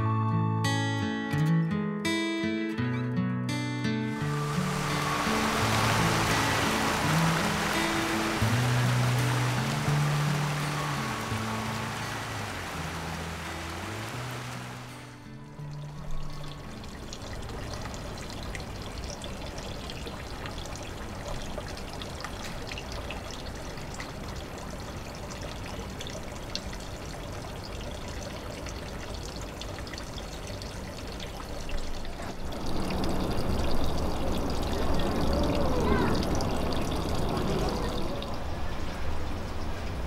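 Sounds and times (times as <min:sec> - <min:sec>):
water splashing onto stone: 0:04.4 - 0:15.0.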